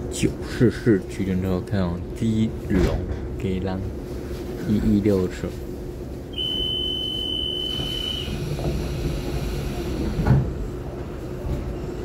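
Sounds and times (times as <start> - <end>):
electric train running hum: 5.3 - 12.0
high thin tone: 6.4 - 8.4.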